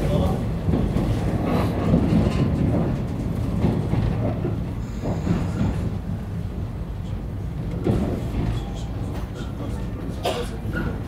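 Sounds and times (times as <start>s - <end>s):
train wheel-on-rail rumble: 0.0s - 11.0s
train knocks: 0.1s - 6.6s, 7.5s - 11.0s.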